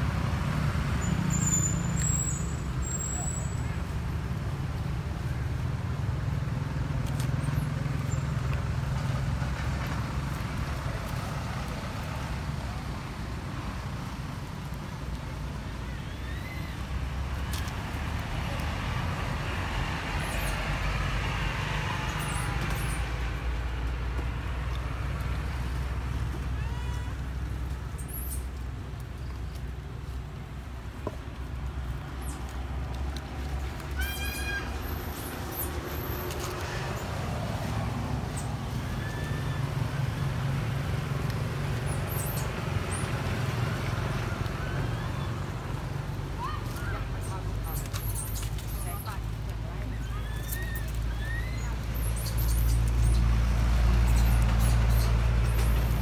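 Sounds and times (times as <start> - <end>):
low outdoor rumble: 0.0 - 56.0
faint high squeaks: 1.0 - 3.7, 33.9 - 37.0, 49.9 - 53.3.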